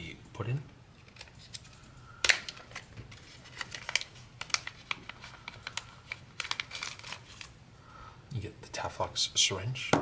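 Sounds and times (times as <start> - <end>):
plastic bag crinkling: 2.3 - 7.5
plastic bag crackling: 3.1 - 7.4.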